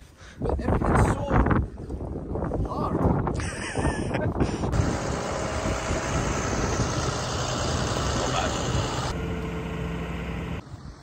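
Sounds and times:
tractor diesel engine running: 0:04.7 - 0:11.0.

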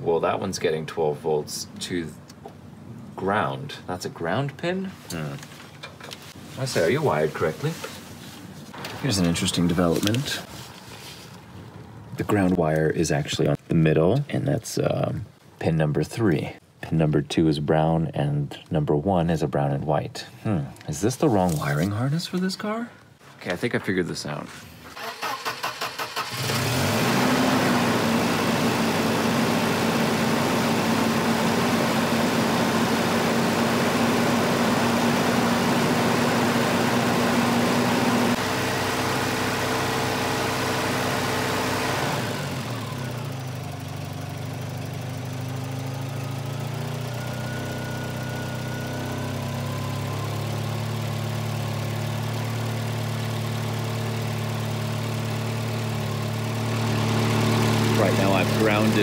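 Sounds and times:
car engine cranking and starting: 0:24.8 - 0:59.0
car engine idling: 0:42.3 - 0:59.0.

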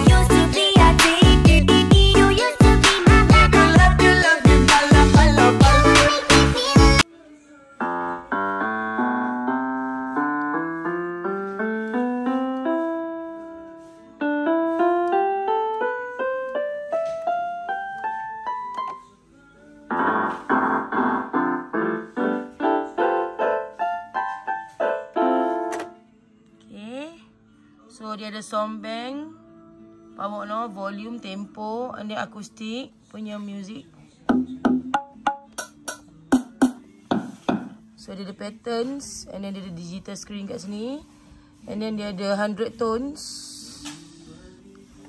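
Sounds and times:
backing music: 0:00.0 - 0:07.0, 0:07.8 - 0:26.1, 0:34.3 - 0:38.1
mini keyboard notes: 0:07.8 - 0:19.2, 0:19.9 - 0:26.0.

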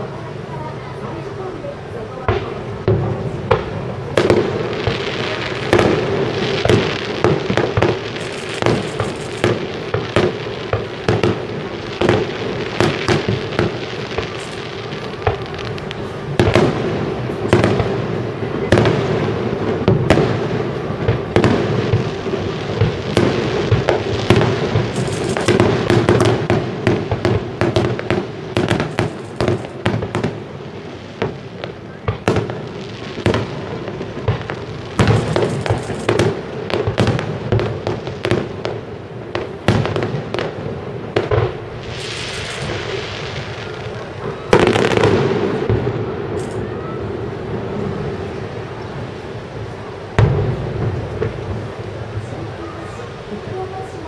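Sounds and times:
firework shells bursting: 0:03.5 - 0:18.0, 0:21.2 - 0:30.5, 0:31.1 - 0:40.6, 0:41.2 - 0:44.0, 0:44.6 - 0:46.7.

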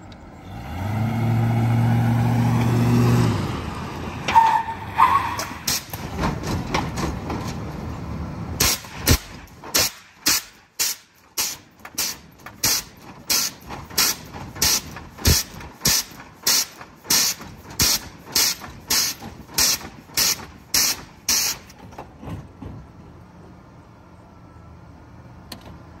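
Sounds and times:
hissing puffs of air: 0:09.8 - 0:21.7.

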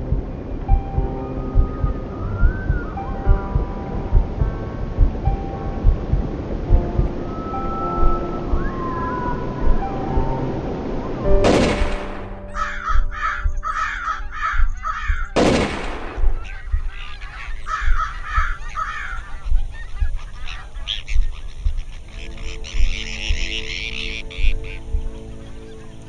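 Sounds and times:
geese honking: 0:12.4 - 0:15.6, 0:16.3 - 0:26.0.

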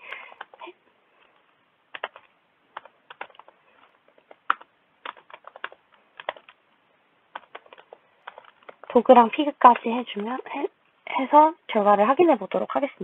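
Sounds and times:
typing on a keyboard: 0:01.9 - 0:06.6, 0:07.3 - 0:09.0.

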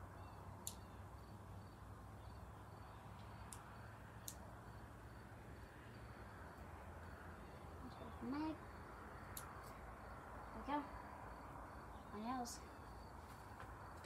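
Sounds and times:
low steady hum: 0:00.0 - 0:14.0
sharp high ticks: 0:00.6 - 0:00.9, 0:03.2 - 0:04.5, 0:09.3 - 0:09.8.

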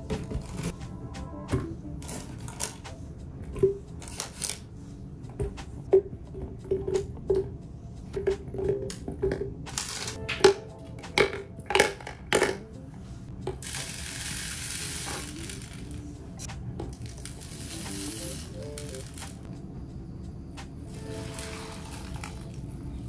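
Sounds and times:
oats pouring hiss: 0:13.6 - 0:16.0, 0:17.1 - 0:19.4, 0:20.9 - 0:22.6.

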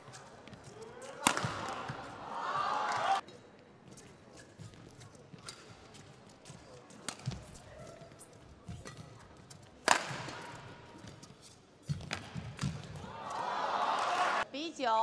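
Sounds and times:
rackets striking shuttlecock: 0:01.1 - 0:02.0, 0:09.8 - 0:11.2, 0:11.8 - 0:13.0.

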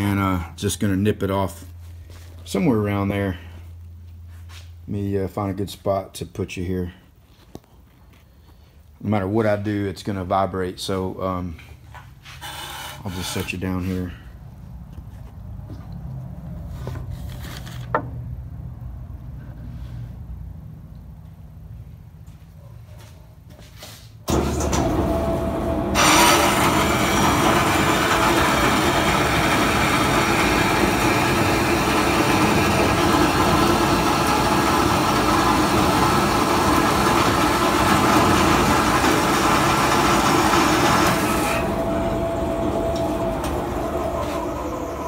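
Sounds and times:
bandsaw running: 0:24.3 - 0:45.0
saw blade cutting steel: 0:26.0 - 0:35.7.

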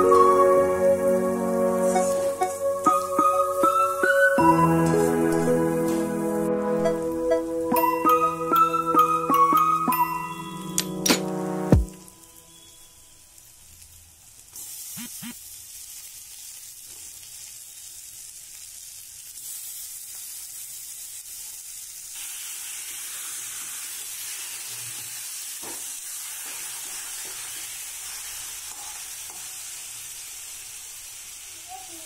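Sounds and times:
fish sizzling in hot oil: 0:12.0 - 0:32.0.

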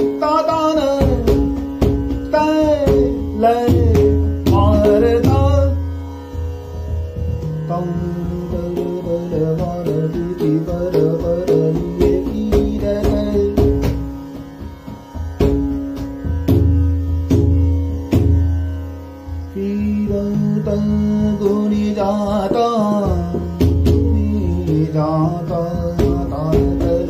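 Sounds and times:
man singing: 0:00.0 - 0:01.6, 0:02.2 - 0:05.9, 0:07.6 - 0:14.0, 0:19.5 - 0:27.0
tanpura drone: 0:00.0 - 0:27.0.

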